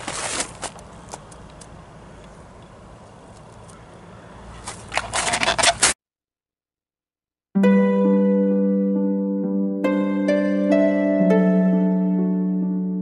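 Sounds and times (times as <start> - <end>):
footsteps crunching in snow: 0.0 - 1.4
twigs scraping and snapping: 0.0 - 1.8, 4.6 - 6.0
soft harp music: 7.6 - 13.0.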